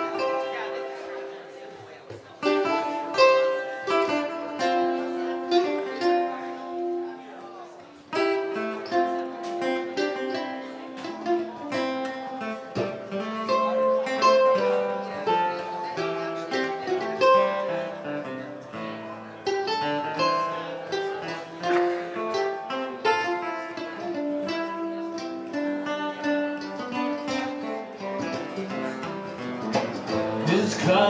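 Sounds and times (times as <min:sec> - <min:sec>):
picked mandolin notes: 0:00.0 - 0:31.0
strummed acoustic guitar: 0:00.0 - 0:31.0
upright bass: 0:28.1 - 0:31.0.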